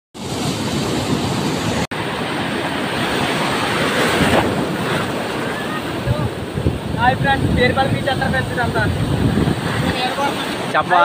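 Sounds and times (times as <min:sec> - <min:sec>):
surf breaking: 0:00.2 - 0:11.0
wind buffeting microphone: 0:03.0 - 0:10.7.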